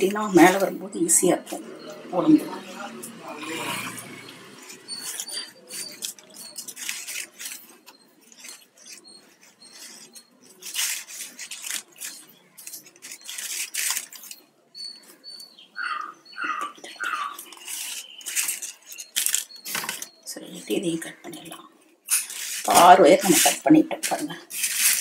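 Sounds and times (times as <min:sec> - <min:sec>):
wire squeaking on wire: 0:01.6 - 0:25.0
plastic wire rustling and clicking: 0:04.6 - 0:14.5, 0:17.0 - 0:20.2, 0:22.0 - 0:25.0.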